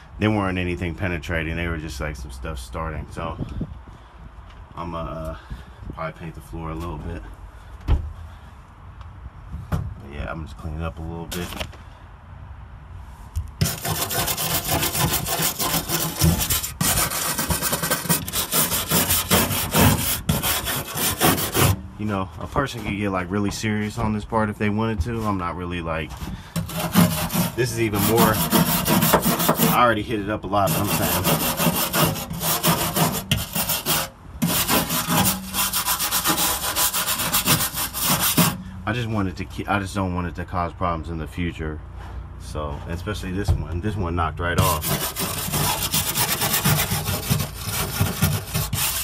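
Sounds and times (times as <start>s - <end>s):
wire brush scrubbing steel: 13.6s - 21.8s, 26.1s - 38.7s, 44.6s - 49.0s.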